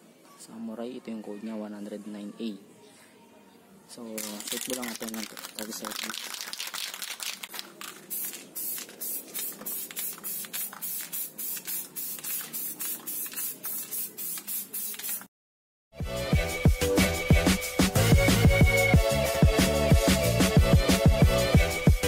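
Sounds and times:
spray can hissing: 4.2 - 15.3
music: 16.0 - 22.0.

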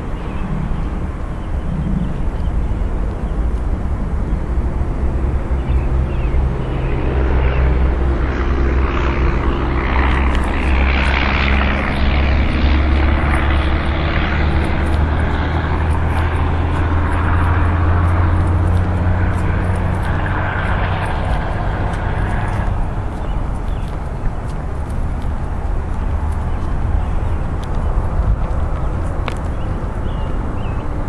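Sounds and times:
skateboard wheels rolling on concrete: 7.8 - 31.0.

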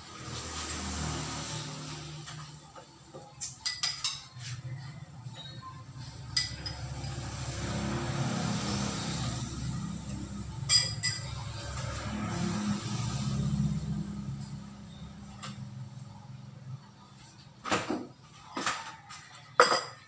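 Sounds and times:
spoon clinking ceramic bowl: 6.4 - 7.2, 10.7 - 11.3.

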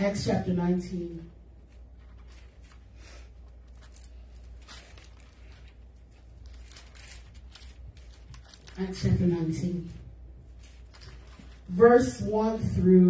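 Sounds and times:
steady low hum: 0.0 - 13.0
thin paper pages rustling: 1.6 - 11.7.

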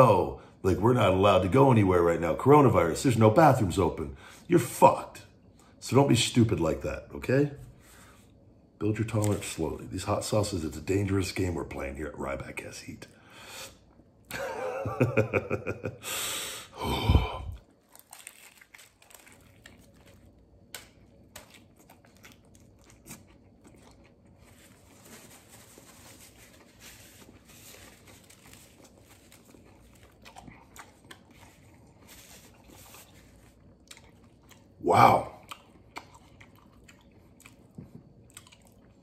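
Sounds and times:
man laughing: 14.3 - 16.1
chewing food: 17.6 - 39.0
man grunting: 34.8 - 35.4.

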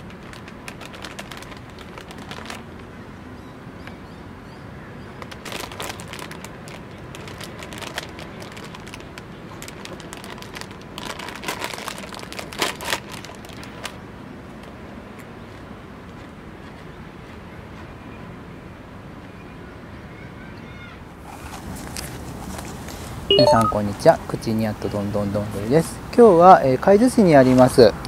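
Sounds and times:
chip crunching: 0.0 - 2.8, 5.4 - 14.0
plastic chip bag crinkling: 0.0 - 2.9, 5.2 - 14.0.

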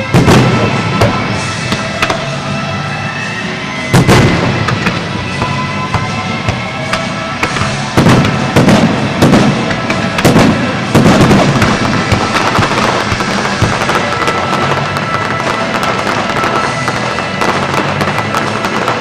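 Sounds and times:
music playing: 0.0 - 19.0
firework shell bursts: 3.8 - 19.0
firework pops and crackles: 4.0 - 19.0.

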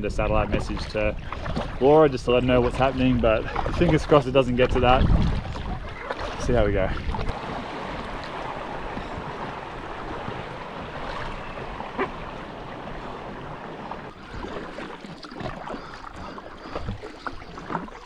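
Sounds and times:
paddle splashes and knocks: 0.2 - 18.0
river water rushing around rocks: 7.3 - 14.9.

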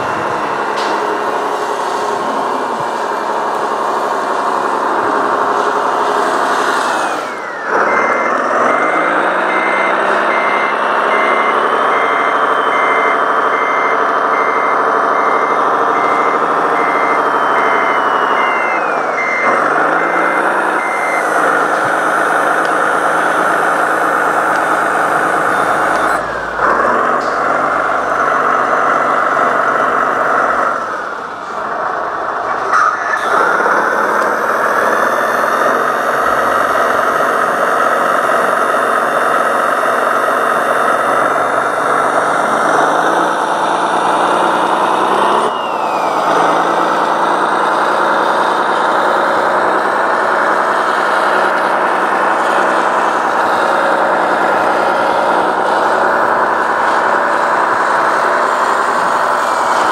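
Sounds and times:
reversing beeper: 0.0 - 5.4, 6.7 - 57.1
simulated diesel engine: 0.0 - 59.9.

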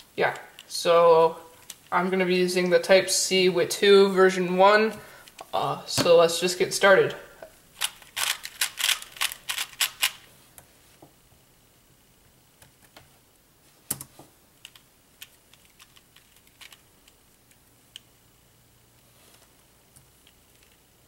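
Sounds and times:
puzzle cube clicking turns: 7.8 - 10.3, 13.9 - 18.1.

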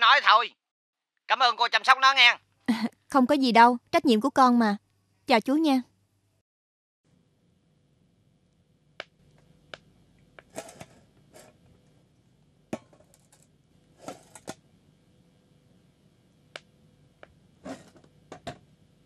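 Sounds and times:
faint steady hum: 7.1 - 19.0.

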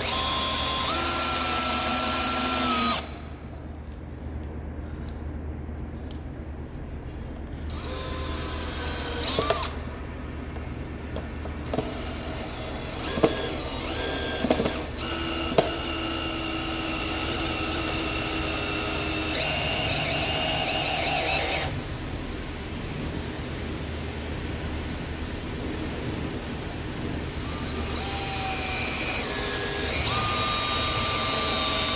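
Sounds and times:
cordless drill motor whining: 0.0 - 3.2, 7.7 - 9.8, 11.7 - 21.8, 27.4 - 31.9.

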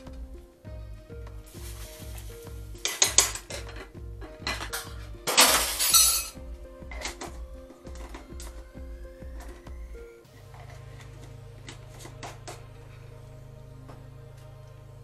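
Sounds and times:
background music with beat: 0.0 - 15.0
cookware clinking: 2.8 - 6.4.

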